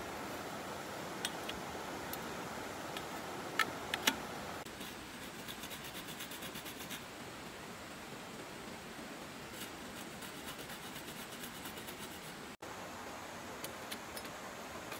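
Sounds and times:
shallow stream rushing: 0.0s - 4.7s.

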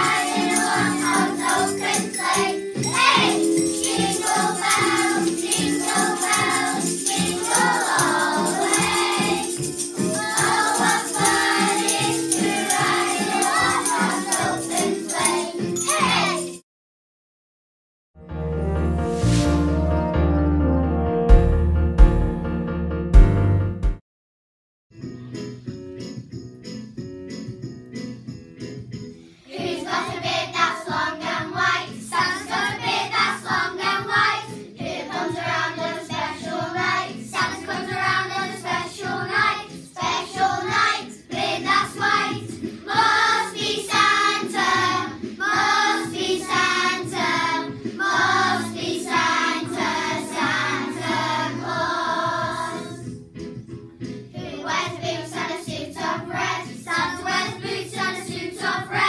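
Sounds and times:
children's choir singing: 0.0s - 16.6s, 29.5s - 53.2s, 54.4s - 59.0s
instrumental accompaniment: 0.0s - 16.6s, 18.2s - 24.0s.

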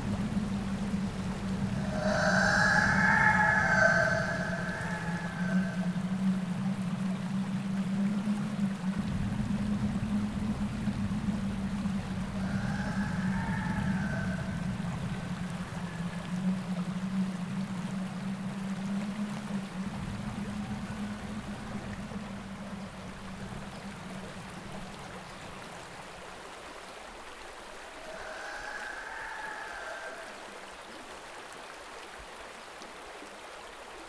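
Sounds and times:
low steady hum: 0.0s - 26.4s
running water: 0.0s - 34.0s
faint wavering high tone: 0.3s - 7.5s.

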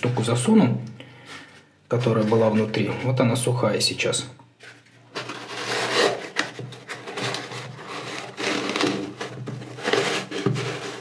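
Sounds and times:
packing insert scraping in shoe: 5.2s - 11.0s.

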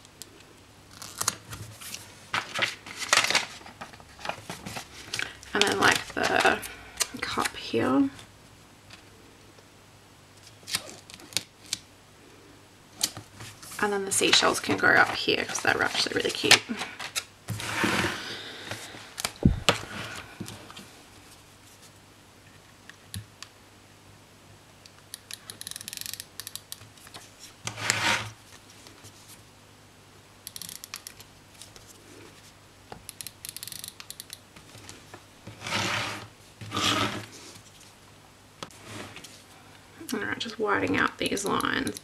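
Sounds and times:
faint steady hum: 0.0s - 42.0s
paper pages rustling: 1.0s - 7.5s.

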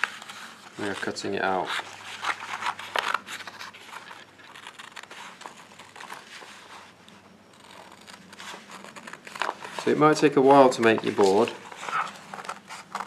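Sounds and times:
paper rustling: 0.0s - 13.0s.

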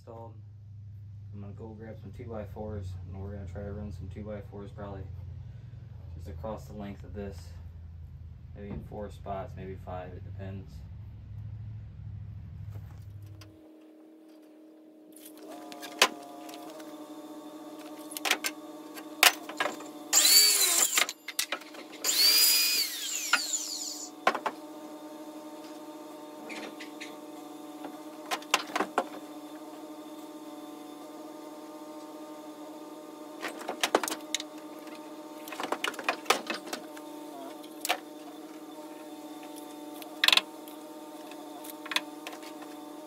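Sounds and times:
cordless drill driving screws: 17.8s - 24.2s.

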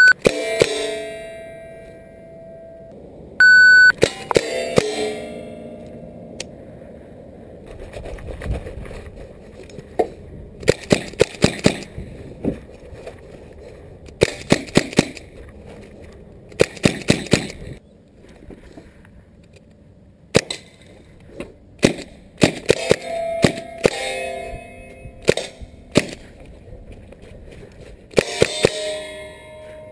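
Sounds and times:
metallic ring: 0.0s - 3.0s, 4.0s - 6.4s, 22.8s - 25.9s, 28.2s - 29.9s
air rifle shots cracking: 10.6s - 11.9s, 21.8s - 24.0s, 25.2s - 26.3s.

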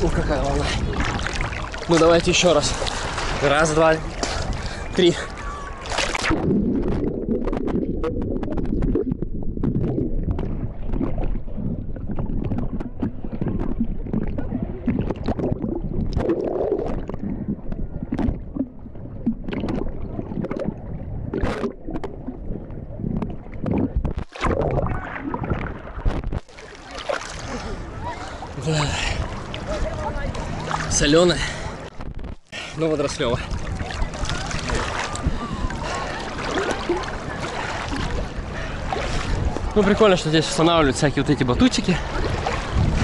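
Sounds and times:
small waves splashing: 0.0s - 9.2s, 9.8s - 43.0s
sea water sloshing and gurgling: 0.0s - 43.0s.

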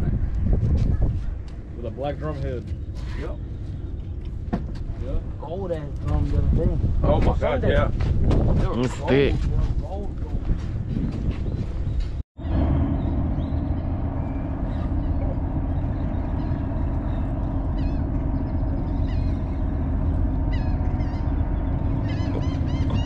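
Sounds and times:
wind buffeting microphone: 0.0s - 23.0s
faint hum: 12.4s - 23.0s
bird chirps: 12.9s - 23.0s.

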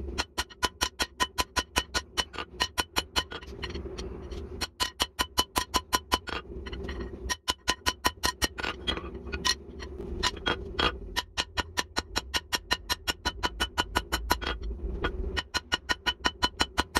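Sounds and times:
hammer striking hot metal on anvil: 0.1s - 3.4s, 4.6s - 6.4s, 7.2s - 8.6s, 10.2s - 14.6s, 15.3s - 16.9s.

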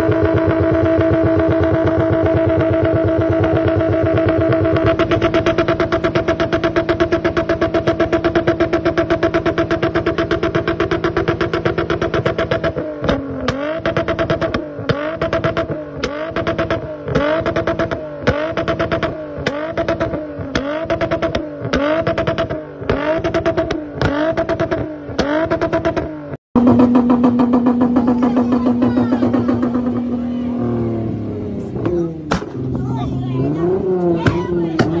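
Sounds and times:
car engine at steady rev: 0.0s - 35.0s
car engine revving: 0.0s - 35.0s
exhaust cracks: 0.0s - 35.0s.

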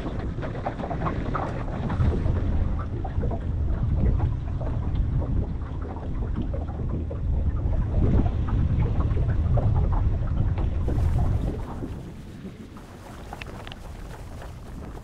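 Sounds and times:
wind buffeting microphone: 0.0s - 15.0s
water splashing against boat hull: 10.7s - 15.0s.

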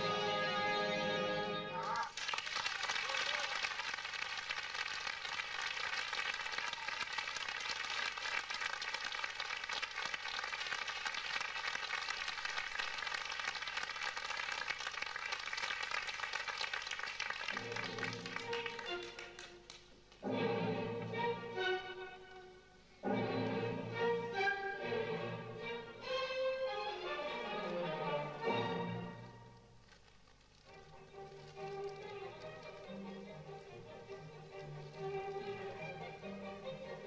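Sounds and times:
orchestral music: 0.0s - 1.9s, 17.6s - 29.6s, 30.7s - 37.0s
audience applauding: 1.8s - 20.2s.

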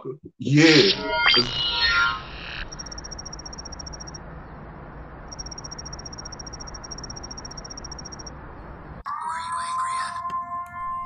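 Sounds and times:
high-pitched pulsing tone: 0.6s - 4.2s, 5.3s - 8.3s.

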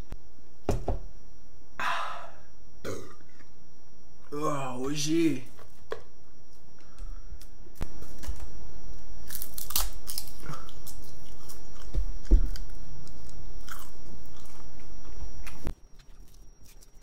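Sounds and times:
crunching dried seaweed: 9.2s - 17.0s.

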